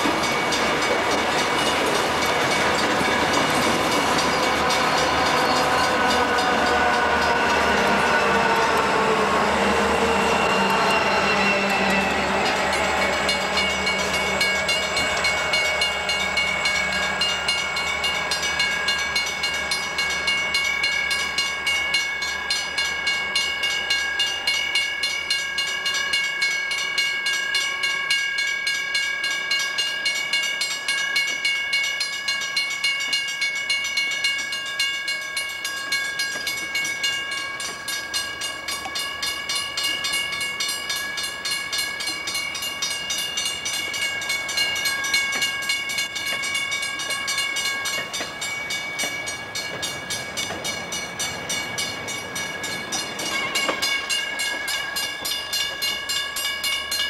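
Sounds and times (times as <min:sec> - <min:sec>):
train wheels clicking over rail joints: 0:00.0 - 0:22.0, 0:35.2 - 0:57.0
high-pitched metallic squeal: 0:01.5 - 0:24.6.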